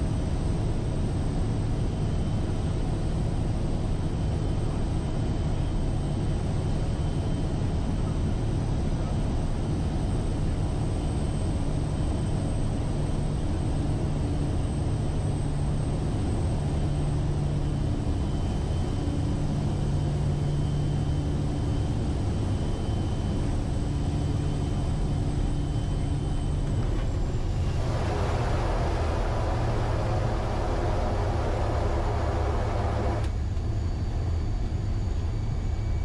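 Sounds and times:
turboprop engine drone: 0:00.0 - 0:36.0
high turbine whine: 0:23.9 - 0:36.0
rushing noise: 0:27.0 - 0:33.3.

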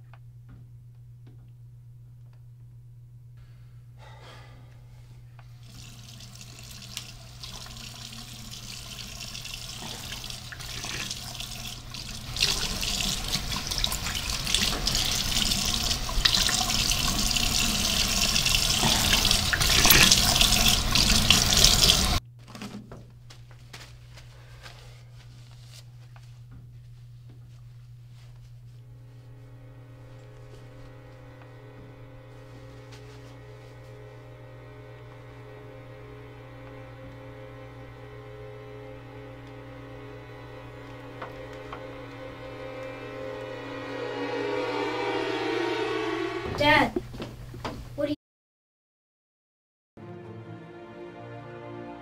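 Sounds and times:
steady low hum: 0:00.0 - 0:48.0
rushing water-like noise: 0:05.8 - 0:22.2.

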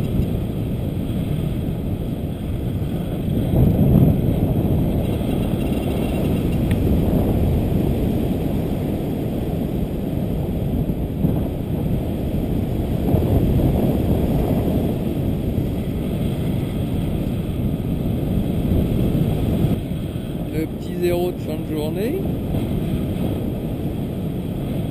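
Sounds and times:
wind buffeting microphone: 0:00.0 - 0:24.9.

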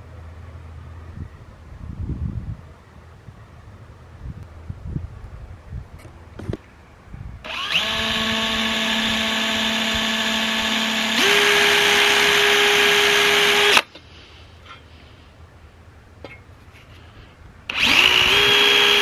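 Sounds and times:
drill motor whining: 0:07.4 - 0:13.8, 0:17.7 - 0:19.0.

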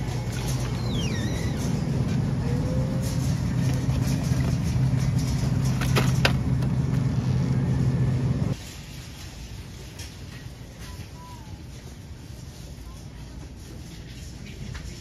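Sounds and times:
freezer cases humming: 0:00.0 - 0:08.6.

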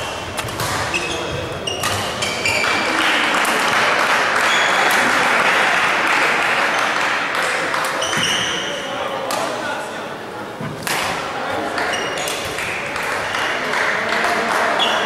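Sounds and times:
shuttlecock hits: 0:00.3 - 0:02.8, 0:10.7 - 0:11.2
shoe squeaks on court floor: 0:00.6 - 0:02.9, 0:04.4 - 0:04.9, 0:08.0 - 0:08.8, 0:11.8 - 0:12.4, 0:14.8 - 0:15.0
applause in hall: 0:02.6 - 0:07.9, 0:12.6 - 0:15.0.

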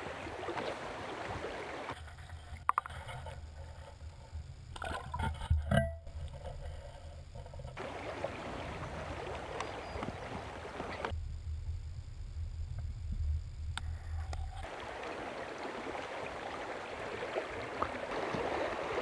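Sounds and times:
gurgling splashes: 0:00.0 - 0:02.0, 0:07.8 - 0:11.1, 0:14.6 - 0:19.0
river current flowing: 0:00.0 - 0:11.1, 0:13.8 - 0:19.0
muffled underwater current hum: 0:00.0 - 0:19.0.

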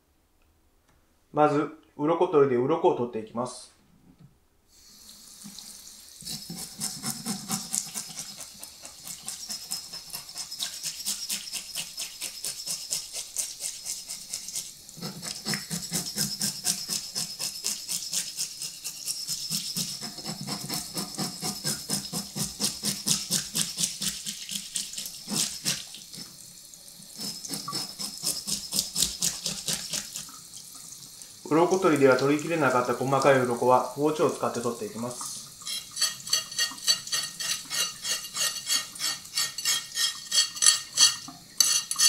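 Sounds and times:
fish scaler scraping scales: 0:06.2 - 0:26.3, 0:27.2 - 0:30.3, 0:35.6 - 0:42.0.

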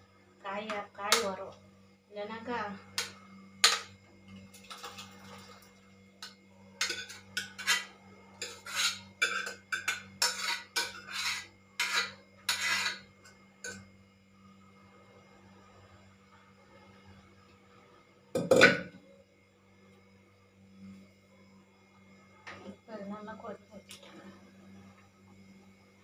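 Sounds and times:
metal cookware clank: 0:06.8 - 0:11.1
scraping in metal pot: 0:06.8 - 0:13.8.

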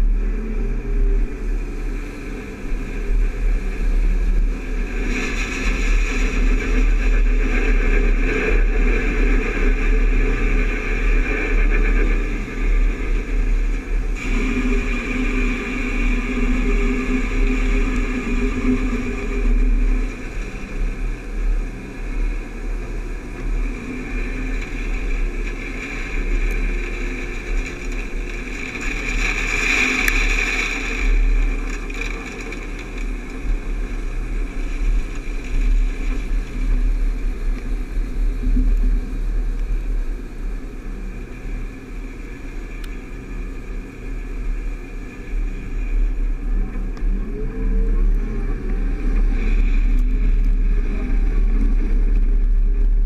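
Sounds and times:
tractor and combine engines: 0:00.0 - 0:53.0
grain pouring from auger: 0:13.2 - 0:21.6, 0:22.6 - 0:39.2.

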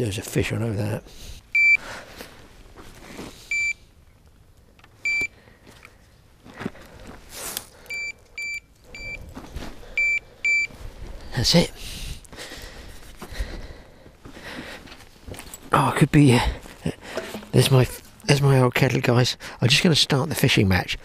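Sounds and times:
bite alarm bleeps: 0:01.6 - 0:01.8, 0:03.5 - 0:03.8, 0:07.9 - 0:09.2, 0:10.0 - 0:10.8
faint handling noise: 0:02.1 - 0:11.3, 0:14.1 - 0:16.0, 0:16.6 - 0:18.4.

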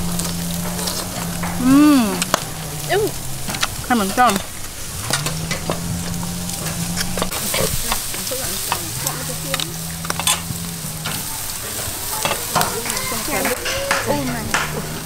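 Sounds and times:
metal tongs clicking and scraping: 0:00.0 - 0:11.3
low steady hum: 0:00.0 - 0:13.5
meat sizzling on a grill: 0:00.0 - 0:15.0.

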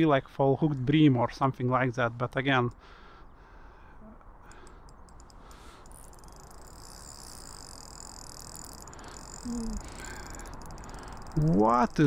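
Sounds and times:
fishing reel ticking: 0:04.5 - 0:12.0.

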